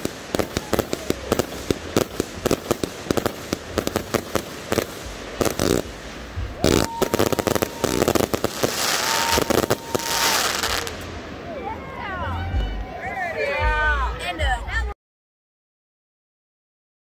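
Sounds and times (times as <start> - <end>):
firework cake shots and bursts: 0.0 - 11.3.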